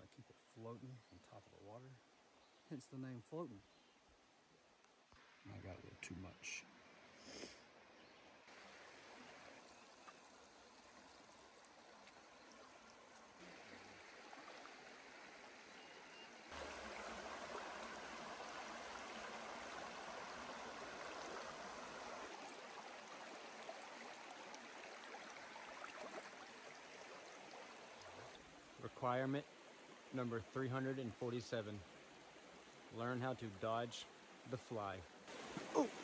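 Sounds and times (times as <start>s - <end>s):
stream rushing over stones: 8.5s - 28.8s, 34.2s - 36.0s.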